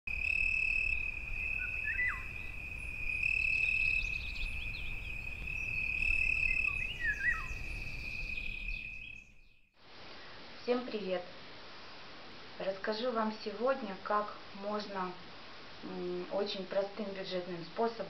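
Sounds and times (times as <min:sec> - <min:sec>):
insect trilling: 0:00.1 - 0:09.5
bird calls sweeping down: 0:00.9 - 0:09.4.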